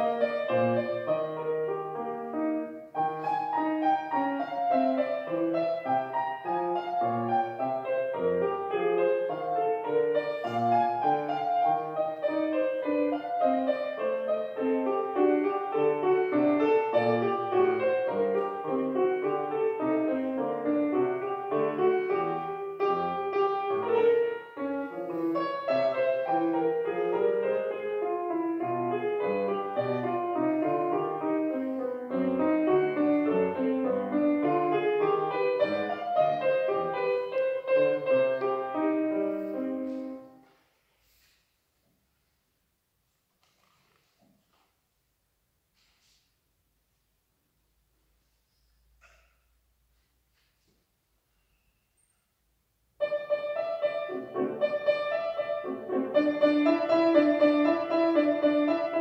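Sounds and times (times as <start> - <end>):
grand piano playing classical piece: 0.0 - 40.5, 52.8 - 59.0.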